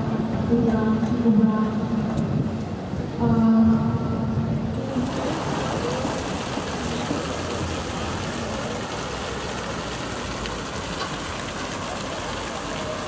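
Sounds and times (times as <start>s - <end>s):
fountain water splashing: 4.6s - 13.0s.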